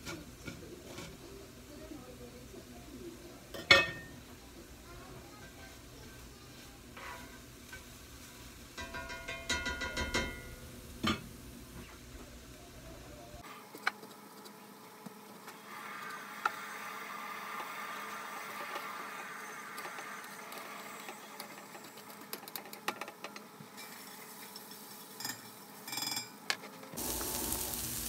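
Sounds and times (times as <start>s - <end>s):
vegetables sizzling in oil: 0.0s - 12.8s, 14.8s - 22.0s, 23.6s - 25.9s, 27.0s - 28.0s
utensils tapping a plate: 8.8s - 11.2s.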